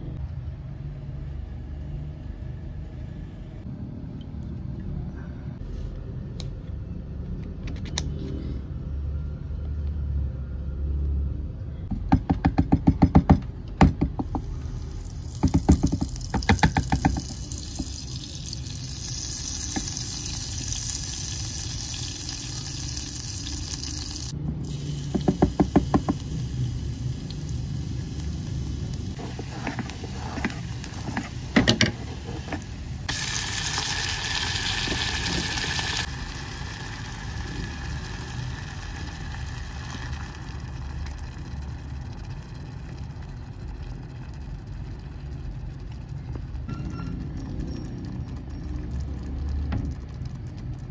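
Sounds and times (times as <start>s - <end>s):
oil sizzling in a pot: 14.5s - 43.8s
spatula scraping a pot: 29.2s - 32.6s.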